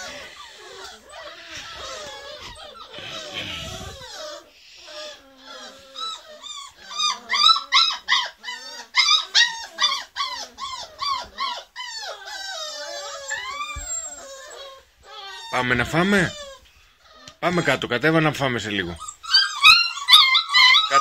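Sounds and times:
puppies whining: 0.0 - 21.0
puppies yelping: 0.0 - 21.0.

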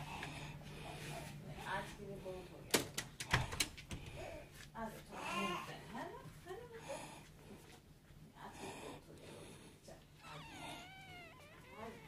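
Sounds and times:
baby whimpering: 10.2 - 12.0.

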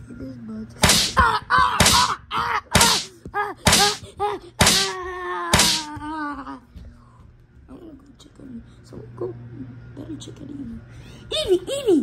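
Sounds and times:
sharp thwacks: 0.8 - 3.1, 3.7 - 4.0, 4.6 - 5.9.

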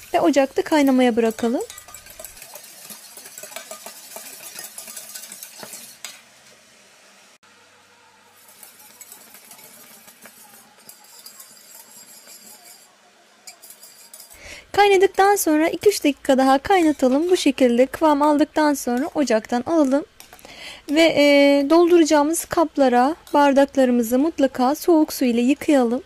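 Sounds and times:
metal spoon scraping pot: 0.0 - 6.2, 8.4 - 21.1.

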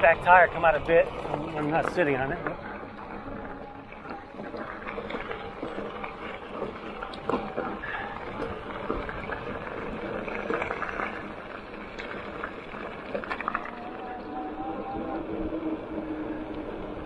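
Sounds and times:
bike rattling: 0.0 - 17.0
bike tyres crunching on gravel: 0.0 - 17.0
steady whine: 0.0 - 17.0
electric motor whine: 12.4 - 17.0.

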